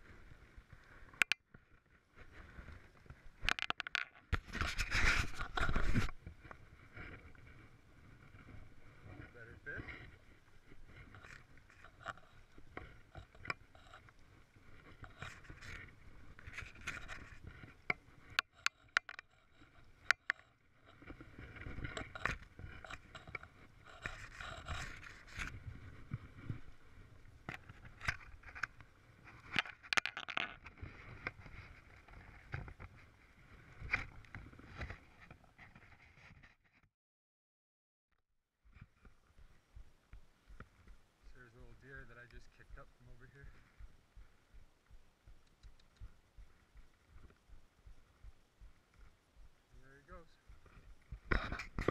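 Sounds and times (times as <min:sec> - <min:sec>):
sharp knocks and clicks: 0:03.4 - 0:04.4, 0:17.9 - 0:20.5
camera handling scraping and rubbing: 0:03.4 - 0:07.6, 0:09.7 - 0:14.2, 0:14.8 - 0:26.8, 0:27.5 - 0:33.1, 0:33.8 - 0:36.8, 0:51.3 - 0:51.9.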